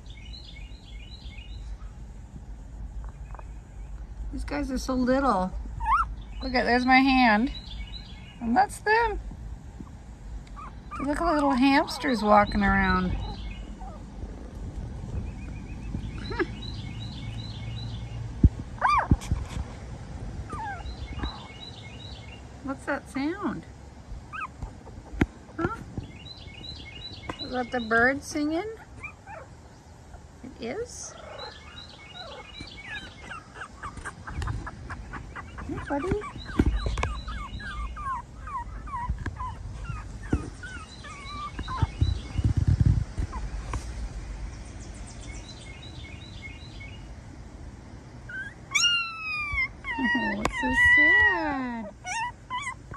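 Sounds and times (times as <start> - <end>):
puppies whimpering: 5.8 - 6.1, 10.5 - 14.0, 20.5 - 21.5, 24.3 - 25.8, 28.7 - 29.5, 31.1 - 42.6, 48.3 - 52.9
faint high chirping: 31.1 - 42.7.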